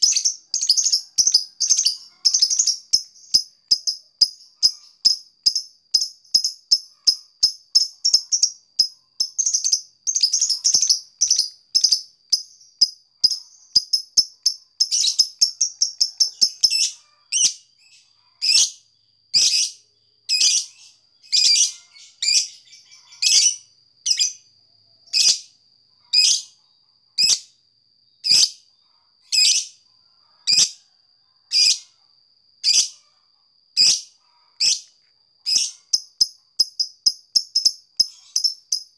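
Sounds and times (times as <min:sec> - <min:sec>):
lovebird ticking chirps: 0:00.0 - 0:17.5, 0:35.5 - 0:38.9.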